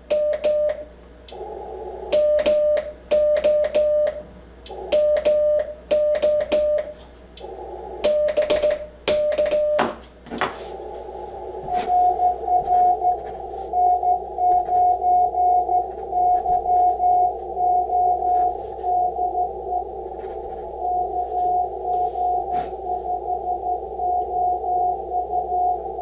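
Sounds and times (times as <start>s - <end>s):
morse code tone: 0.0s - 26.0s
radio band noise hiss: 1.3s - 2.2s, 6.9s - 9.1s, 9.8s - 26.0s
higher-pitched morse code tone: 8.0s - 10.0s, 10.8s - 26.0s.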